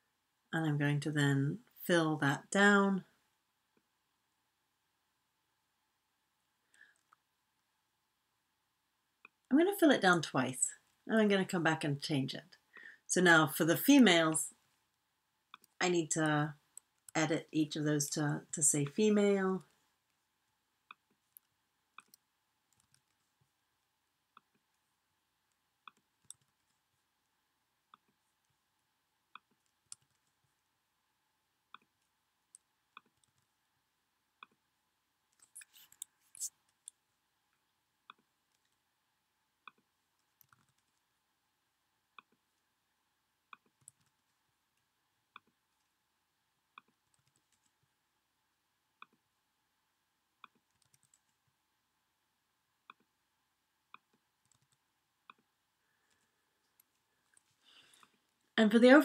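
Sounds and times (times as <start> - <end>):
computer mouse clicks: 6.7 - 7.2, 15.5 - 15.8, 20.9 - 23.3, 25.8 - 26.8, 29.4 - 30.4, 31.7 - 33.6, 34.4 - 34.6, 35.3 - 38.8, 39.6 - 41.1, 42.2 - 42.4, 43.5 - 44.4, 45.4 - 45.9, 46.7 - 47.8, 49.0 - 49.2, 50.4 - 51.4, 53.9 - 55.5, 56.1 - 58.2.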